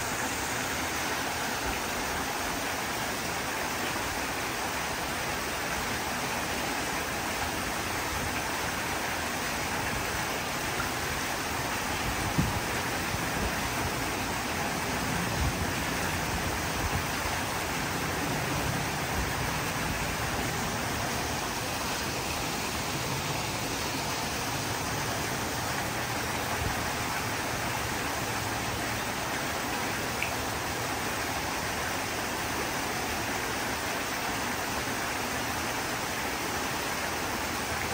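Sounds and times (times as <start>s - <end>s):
small waterfall splashing: 0.0s - 37.9s.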